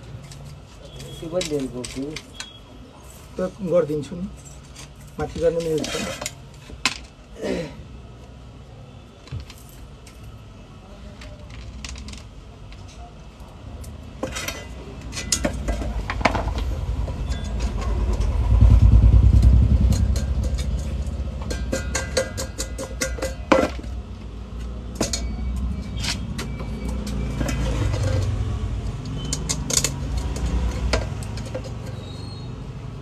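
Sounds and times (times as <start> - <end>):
metal parts clinking: 0.2 - 7.3, 9.2 - 10.4, 11.2 - 18.6, 19.8 - 32.7
passing vehicle engine rumble: 16.1 - 21.5.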